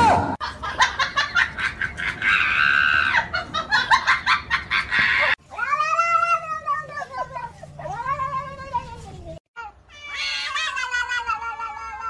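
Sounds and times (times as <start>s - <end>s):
cat yowling: 9.9s - 12.0s.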